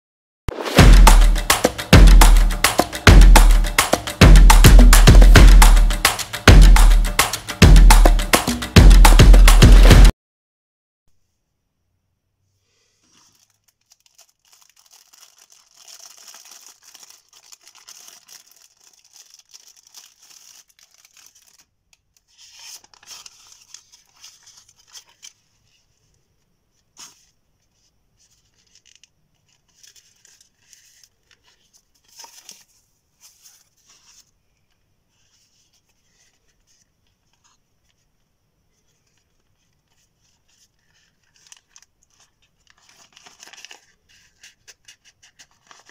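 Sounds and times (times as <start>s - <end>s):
soft rustles of handling: 12.4s - 45.9s
plastic packaging crinkling: 13.0s - 25.8s, 39.1s - 45.9s.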